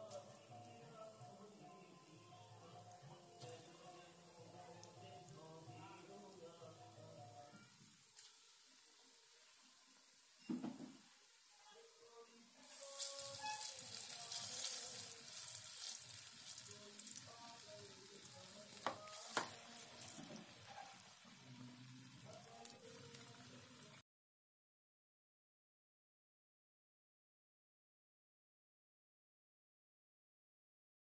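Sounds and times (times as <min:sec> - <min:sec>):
hot oil sizzling: 0:00.0 - 0:24.0.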